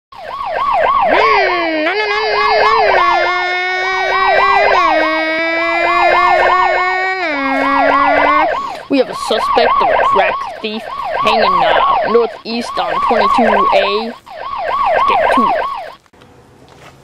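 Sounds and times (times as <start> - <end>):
siren yelping: 0.2 - 16.0
steady buzzing tone: 1.2 - 8.8.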